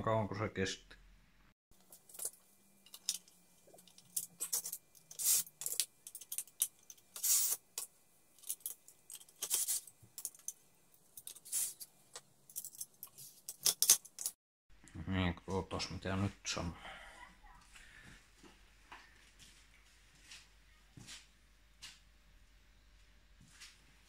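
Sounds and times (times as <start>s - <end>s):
metal parts and tools clinking: 1.9s - 10.6s, 11.2s - 14.4s.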